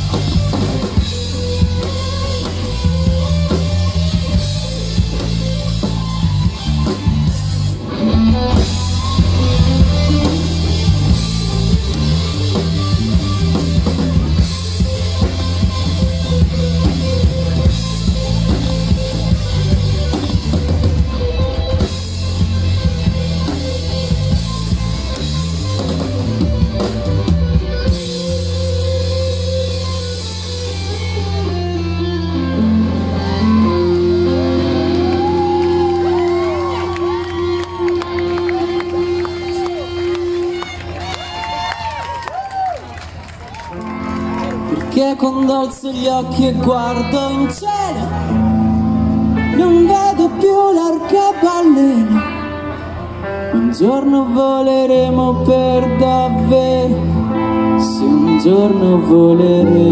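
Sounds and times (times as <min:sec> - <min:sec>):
drum kit: 0:00.0 - 0:40.2
live rock band playing: 0:00.0 - 0:59.9.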